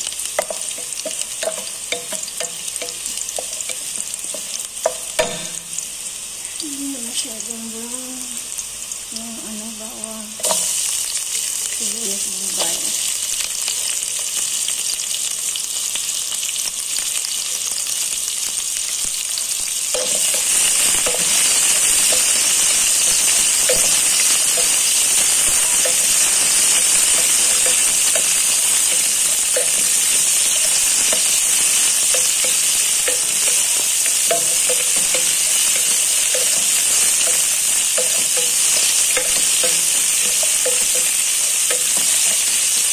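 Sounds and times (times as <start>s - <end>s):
onions sizzling in oil: 0.0s - 42.9s.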